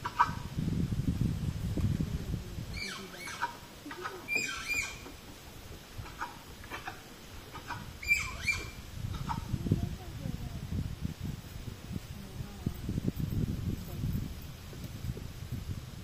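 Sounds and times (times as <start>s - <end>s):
high squeaky animal calls: 2.7s - 5.1s, 6.0s - 9.5s.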